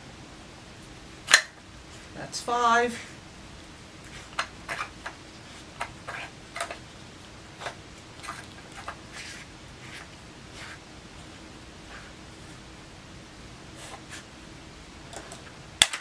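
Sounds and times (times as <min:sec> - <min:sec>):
plastic puzzle clicks and knocks: 0:15.2 - 0:16.0.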